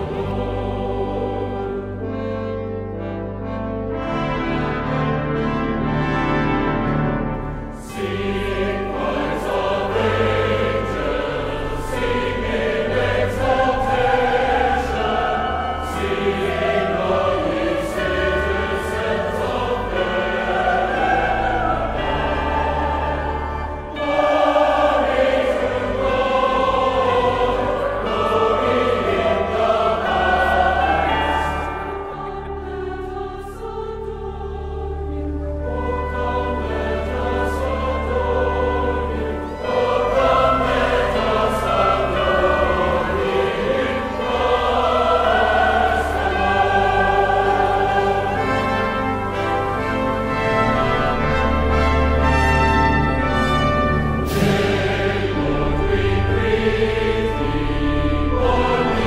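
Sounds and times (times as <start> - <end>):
choir singing sustained notes: 0.0 - 59.0
orchestral accompaniment: 0.0 - 59.0.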